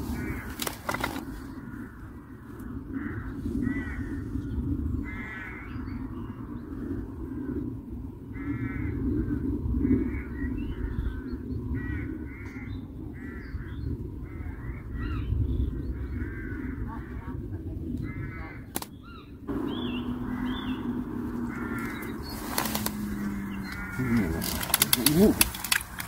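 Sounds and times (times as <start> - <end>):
crows cawing: 0.0 - 7.6, 8.3 - 15.3, 16.0 - 17.4, 18.0 - 26.0
low rumbling background: 0.0 - 26.0
low steady hum: 15.2 - 26.0.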